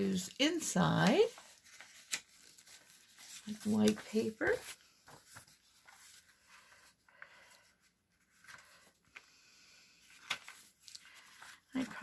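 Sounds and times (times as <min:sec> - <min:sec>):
paper sheets rustling and sliding: 0:00.0 - 0:09.4, 0:10.0 - 0:12.0.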